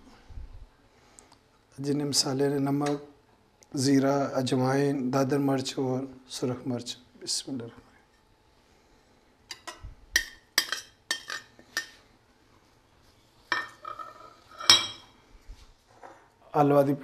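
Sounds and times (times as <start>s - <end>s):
knife tapping glass dishes: 9.5s - 12.0s
glass plate clattering on marble: 13.5s - 15.1s.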